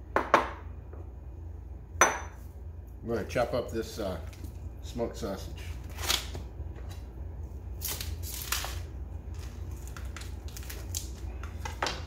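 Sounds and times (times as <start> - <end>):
plastic packaging crinkling: 7.8 - 12.0.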